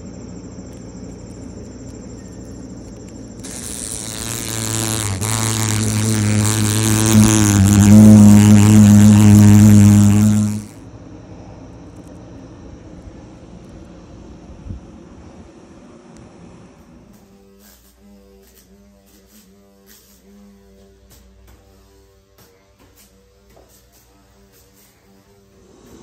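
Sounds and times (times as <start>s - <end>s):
high insect trill: 0.0s - 10.8s
fly wings buzzing: 3.4s - 10.8s.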